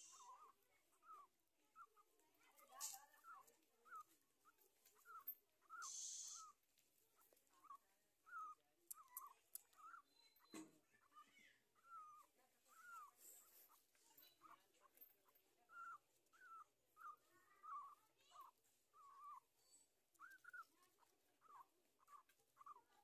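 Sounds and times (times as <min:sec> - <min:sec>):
puppies squeaking and whimpering: 0:00.0 - 0:06.6, 0:07.2 - 0:23.0.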